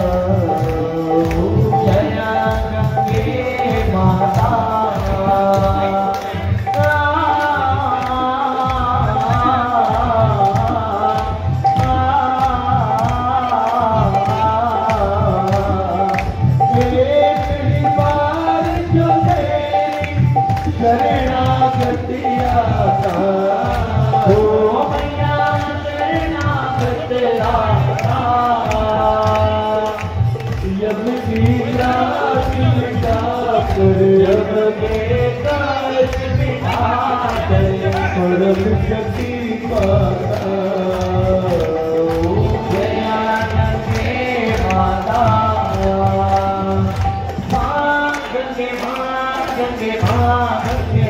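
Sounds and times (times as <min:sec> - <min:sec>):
devotional song singing: 0:00.0 - 0:51.0
steady drum beat: 0:00.0 - 0:51.0.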